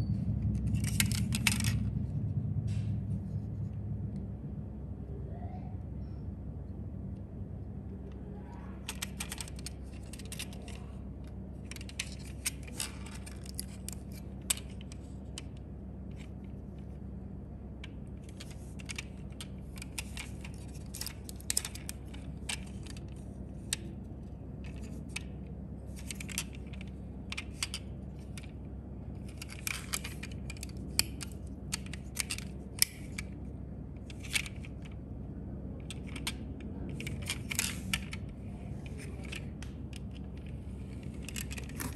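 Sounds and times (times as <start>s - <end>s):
fingers handling metal toy car: 0.6s - 1.9s, 8.8s - 17.0s, 17.8s - 35.0s, 35.8s - 41.9s.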